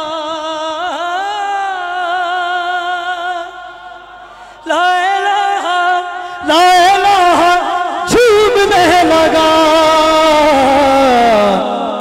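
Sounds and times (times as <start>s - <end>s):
man singing devotional poem: 0.0s - 12.0s.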